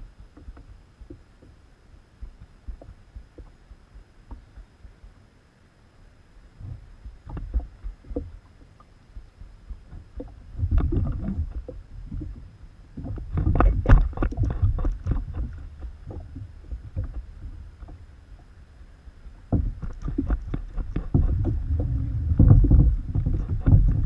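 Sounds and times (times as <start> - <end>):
knocks and rattles on plastic kayak: 0.0 - 1.6, 2.2 - 5.0, 6.6 - 18.1, 19.4 - 24.0
low rumble of rattling camera mount: 0.0 - 1.6, 6.6 - 18.5, 19.3 - 24.0.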